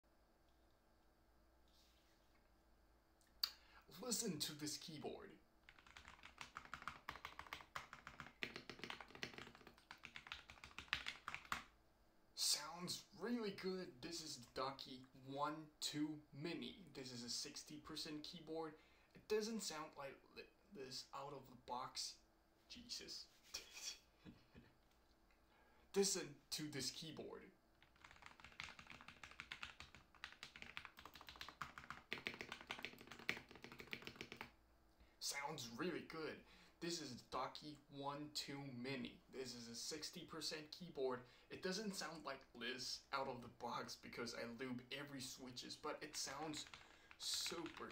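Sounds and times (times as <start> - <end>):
fast keyboard typing: 5.7 - 11.7, 27.8 - 34.6, 46.2 - 47.9.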